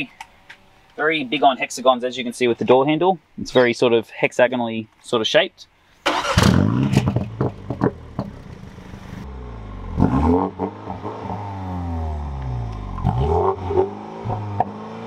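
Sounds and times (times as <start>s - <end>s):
car engine revving and idling: 6.2s - 15.0s.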